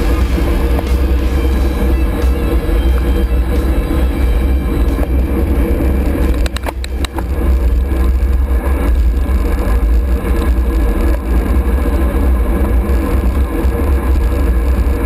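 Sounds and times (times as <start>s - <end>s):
road noise: 0.0s - 15.0s.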